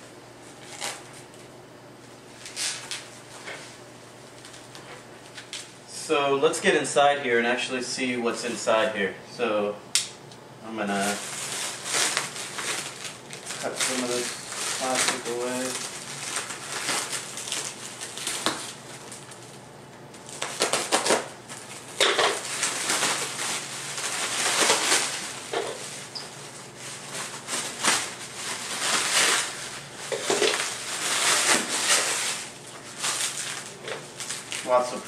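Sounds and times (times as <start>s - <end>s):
plastic wrap crinkling and tearing: 0.6s - 1.4s, 2.4s - 3.1s, 10.9s - 35.0s.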